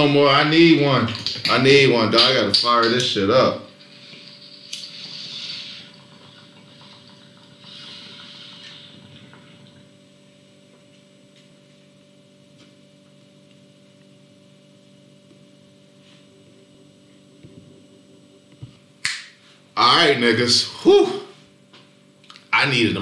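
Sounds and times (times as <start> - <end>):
steady electrical hum: 0.0 - 23.0
faint water bubbling: 3.7 - 10.7.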